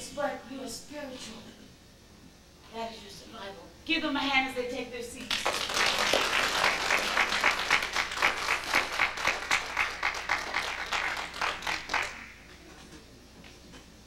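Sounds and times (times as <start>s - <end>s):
audience applauding: 5.3s - 12.6s.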